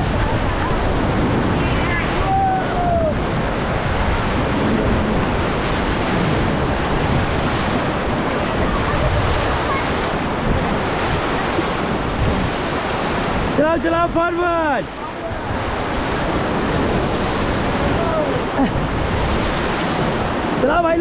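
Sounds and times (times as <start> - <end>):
river rapids rushing: 0.0 - 21.0.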